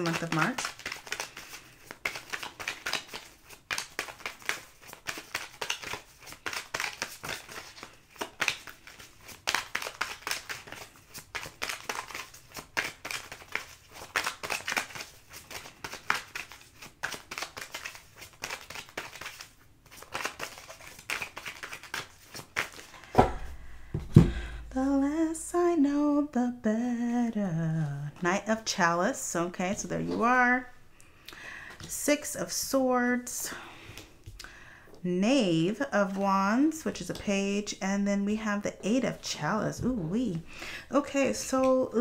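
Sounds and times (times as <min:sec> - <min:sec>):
cards being shuffled by hand: 0:00.0 - 0:24.6, 0:35.7 - 0:37.3.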